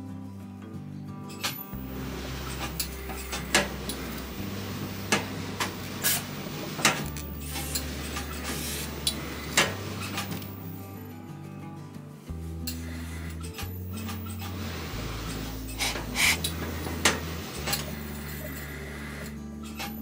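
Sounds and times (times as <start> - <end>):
soft background music: 0.0 - 20.0
steam iron hissing: 1.8 - 10.8, 12.7 - 20.0
steam iron clicks and knocks: 2.3 - 10.5, 15.7 - 18.0.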